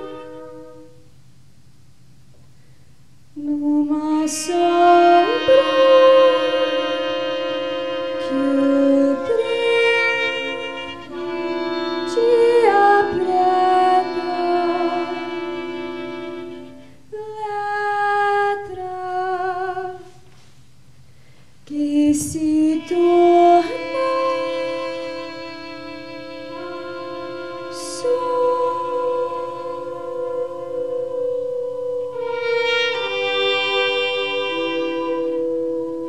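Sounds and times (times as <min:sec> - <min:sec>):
chamber ensemble holding chords: 0:00.0 - 0:01.1, 0:04.4 - 0:16.9, 0:22.6 - 0:36.0
clarinet: 0:00.0 - 0:01.1, 0:03.4 - 0:20.4, 0:21.7 - 0:36.0
trumpet: 0:00.0 - 0:01.1, 0:04.0 - 0:17.0, 0:21.8 - 0:36.0.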